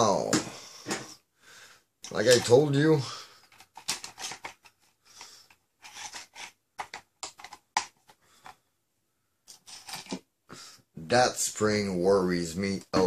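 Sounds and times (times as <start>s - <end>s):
clicks of plastic parts handled: 2.0s - 2.6s, 3.4s - 8.6s.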